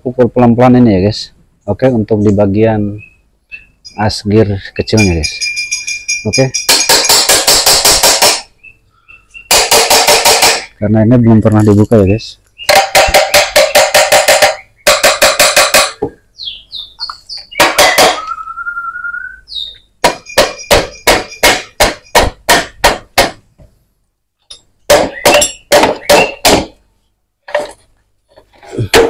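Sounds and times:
hammer tapping on metal: 4.9 - 8.5, 9.5 - 10.7, 12.7 - 16.2, 20.0 - 23.4.

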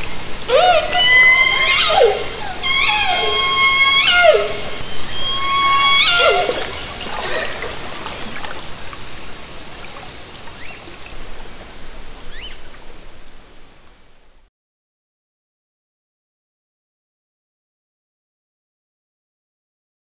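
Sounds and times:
short rising whistles: 0.5 - 8.0
killer whale calls: 0.5 - 9.0
underwater hiss: 3.6 - 12.3.

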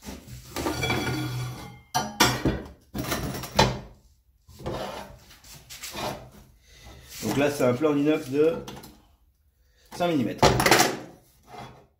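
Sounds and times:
metal bar scraping and ringing: 0.6 - 1.9.

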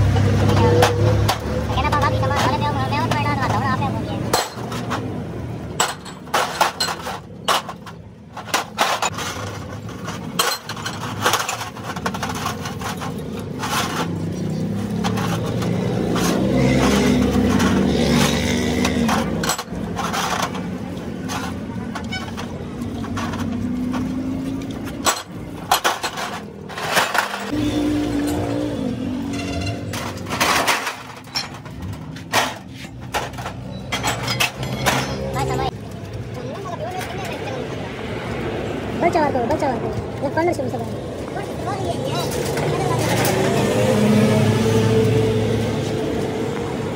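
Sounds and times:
metal parts clinking in tray: 4.2 - 5.1, 5.7 - 35.8.

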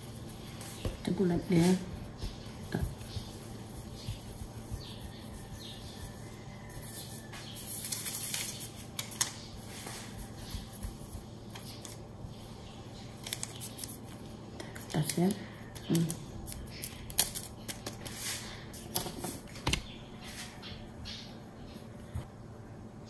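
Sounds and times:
dough rolling on mat: 0.0 - 8.8, 9.6 - 12.1.

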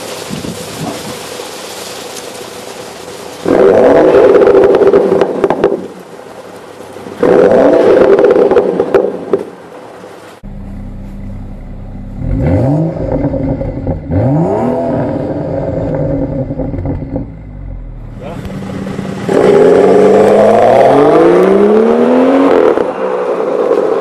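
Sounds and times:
car engine idling: 0.0 - 3.5, 9.6 - 20.5
exhaust crackles: 0.0 - 24.0
car engine revving: 3.3 - 6.0, 7.2 - 9.3, 10.4 - 24.0.

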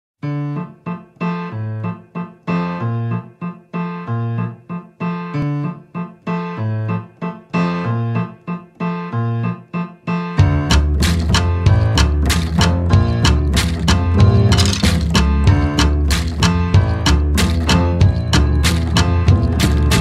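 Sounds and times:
keyboard chords: 0.2 - 20.0
percussion accompaniment: 10.4 - 20.0.

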